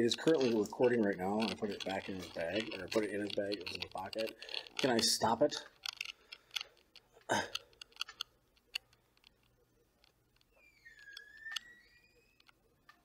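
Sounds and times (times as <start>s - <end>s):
small clicks: 0.0s - 13.0s
throat sound: 7.2s - 7.7s.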